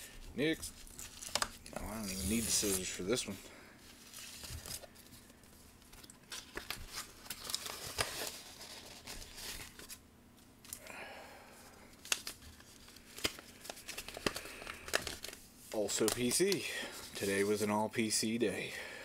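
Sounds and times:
paper envelope tearing: 0:00.9 - 0:03.0, 0:06.3 - 0:10.0.

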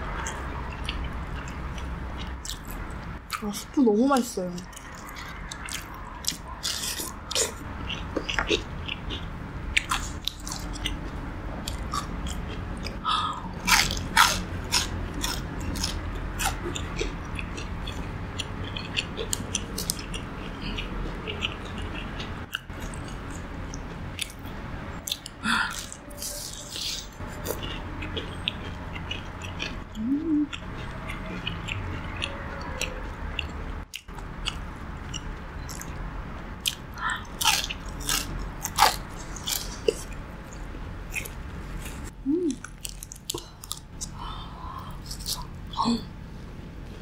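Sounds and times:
crunching crispy fried food: 0:13.7 - 0:18.0, 0:37.2 - 0:44.4.

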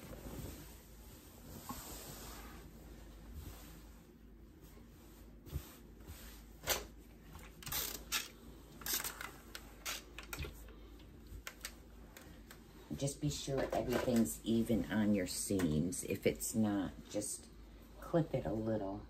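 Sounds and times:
fabric rustling: 0:00.0 - 0:14.6.

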